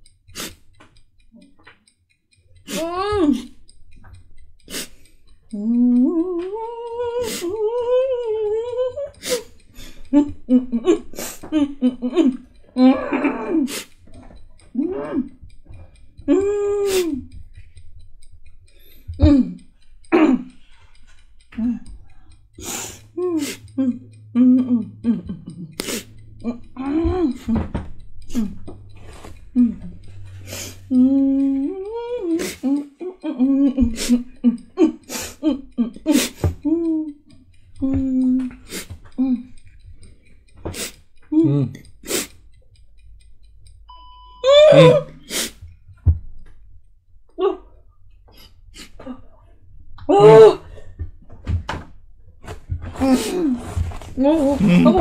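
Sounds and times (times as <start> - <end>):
sharp hissing breath: 0.3 - 0.6, 22.6 - 23.6
sharp hissing breaths: 0.3 - 0.7, 4.7 - 5.3, 22.0 - 23.7, 45.2 - 45.6
person humming: 2.6 - 3.7, 4.6 - 17.7, 19.1 - 39.8, 40.7 - 42.3, 44.4 - 45.6, 47.3 - 47.8, 50.0 - 50.7, 52.9 - 55.0.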